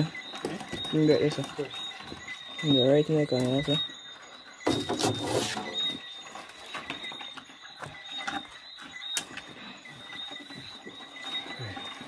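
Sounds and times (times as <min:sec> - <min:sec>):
faint high-pitched tone: 0:00.0 - 0:12.0
plastic drums scraping: 0:04.6 - 0:09.5.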